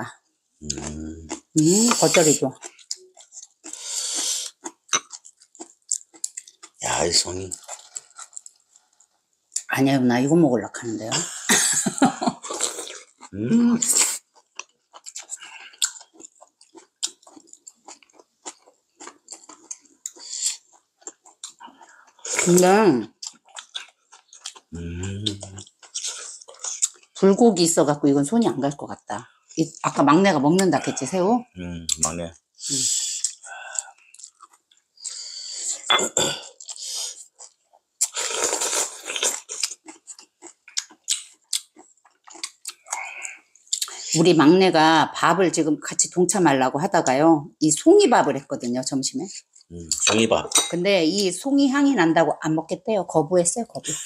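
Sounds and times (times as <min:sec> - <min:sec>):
mouth chewing smacks: 0:12.4 - 0:22.3, 0:33.1 - 0:35.2, 0:36.5 - 0:44.1, 0:49.4 - 0:50.2
slurping soup from a spoon: 0:38.0 - 0:39.5.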